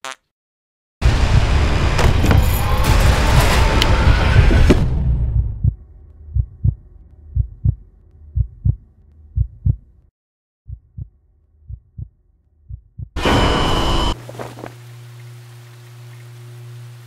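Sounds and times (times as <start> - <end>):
heartbeat thumps: 4.3 - 9.9, 10.7 - 12.1, 12.7 - 13.2.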